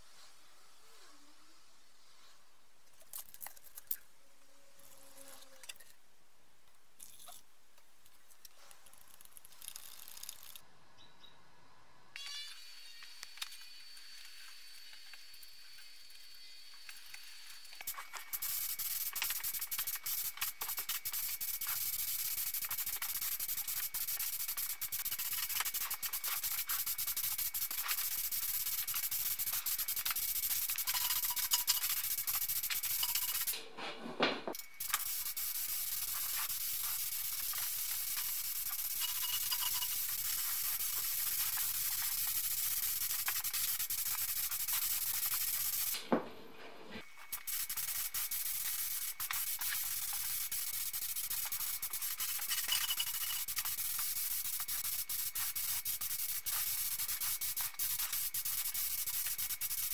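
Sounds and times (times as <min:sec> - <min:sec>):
spray gun hissing: 0:17.2 - 0:33.8, 0:34.5 - 0:59.9.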